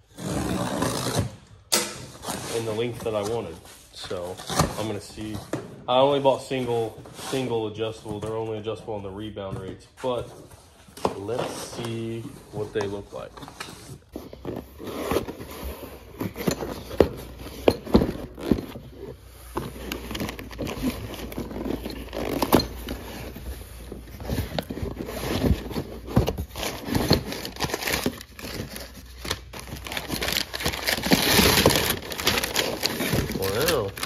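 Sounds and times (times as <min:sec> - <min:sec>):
cardboard scraping and bending: 0:10.0 - 0:34.0
packing paper crinkling: 0:19.6 - 0:34.0.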